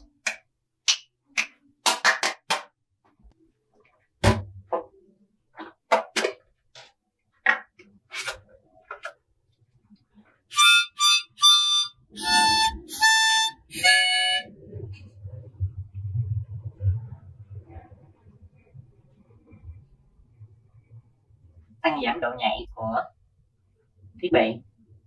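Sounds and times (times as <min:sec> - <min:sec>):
hand claps: 0:00.0 - 0:02.8
short high-pitched tones: 0:10.5 - 0:14.5.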